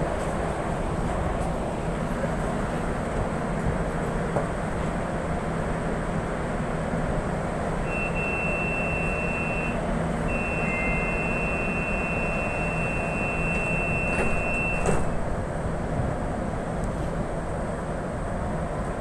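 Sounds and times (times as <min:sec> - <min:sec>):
low train hum: 0:00.0 - 0:19.0
high warning beep: 0:07.9 - 0:15.0
sliding doors shutting: 0:07.9 - 0:15.4.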